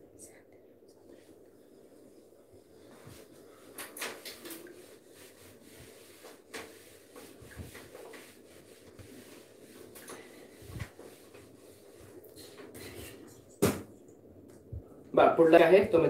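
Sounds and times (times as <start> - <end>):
duster rubbing on whiteboard: 2.0 - 13.2.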